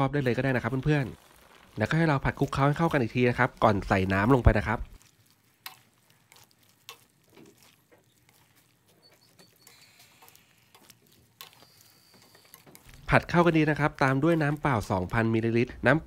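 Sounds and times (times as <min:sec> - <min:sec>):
wooden spatula scraping a pan: 0:00.2 - 0:15.6.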